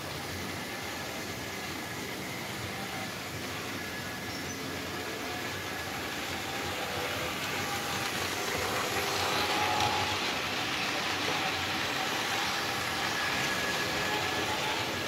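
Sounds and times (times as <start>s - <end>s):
model train rumbling on track: 0.0s - 15.0s.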